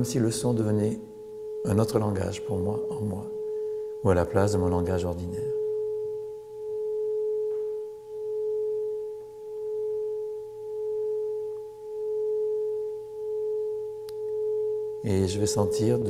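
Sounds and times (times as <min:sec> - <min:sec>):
singing bowl sustained tone: 0:00.0 - 0:16.0.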